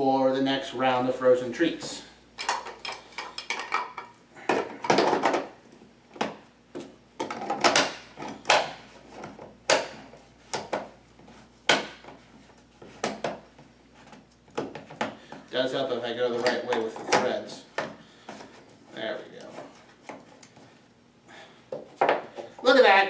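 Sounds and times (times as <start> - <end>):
hard plastic parts clicking and knocking: 2.4 - 10.9.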